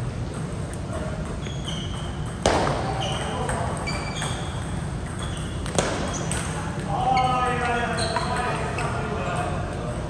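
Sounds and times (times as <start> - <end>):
short high squeaks: 1.4 - 2.2, 2.9 - 6.4, 7.1 - 8.4.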